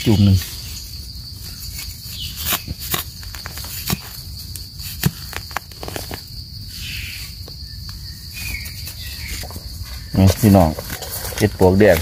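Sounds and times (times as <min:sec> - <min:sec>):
high insect drone: 0:00.0 - 0:12.0
trowel scraping in soil: 0:01.5 - 0:04.2, 0:08.4 - 0:12.0.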